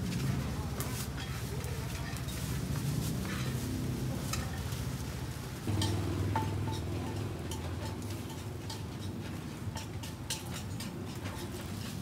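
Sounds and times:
skewers clicking on a grill: 0.0s - 3.6s, 4.2s - 5.0s, 5.6s - 12.0s
steady low hum: 5.6s - 8.4s.

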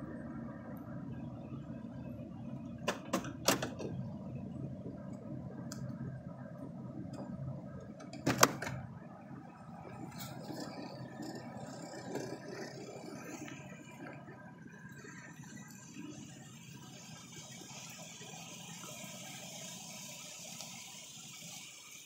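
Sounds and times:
steady low rumble: 3.8s - 8.1s.

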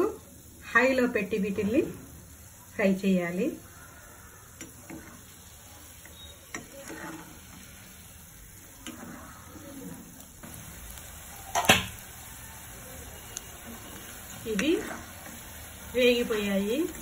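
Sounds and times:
fritters sizzling in oil: 0.0s - 17.0s
skimmer scraping pan: 6.0s - 8.0s, 8.6s - 10.1s, 13.7s - 15.4s.

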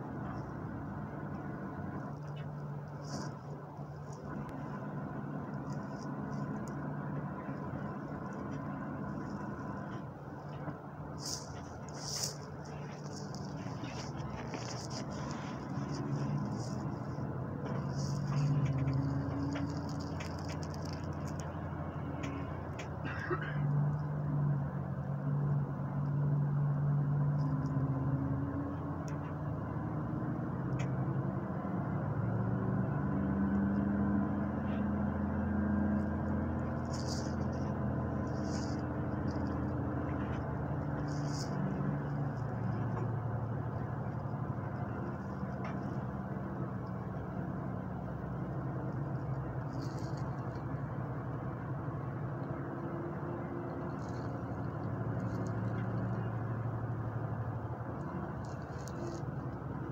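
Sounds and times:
bus engine hum: 0.0s - 59.9s
road and tyre rumble: 0.0s - 59.9s
faint ticks: 5.4s - 24.1s, 53.6s - 59.9s.

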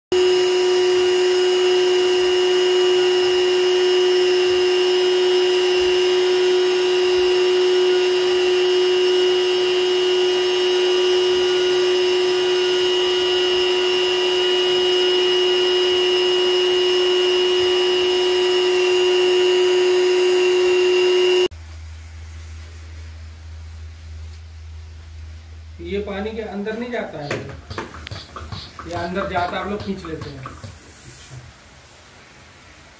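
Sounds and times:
vacuum cleaner whining: 0.1s - 21.5s, 26.8s - 32.0s.

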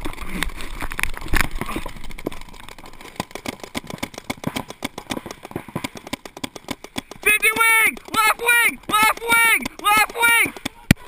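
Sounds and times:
paintball markers firing: 3.0s - 11.0s.

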